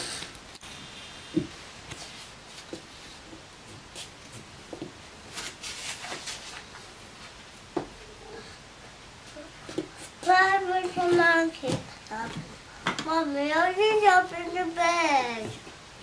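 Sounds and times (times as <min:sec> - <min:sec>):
faint rustles: 0:05.3 - 0:08.6.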